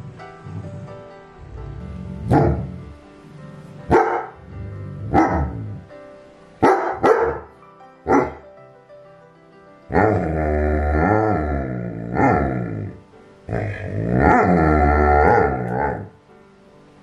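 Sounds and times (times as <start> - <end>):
background music: 0.0 - 17.0
dog barking: 2.3 - 2.7, 3.9 - 4.4, 5.1 - 5.6, 6.6 - 7.5, 8.1 - 8.4.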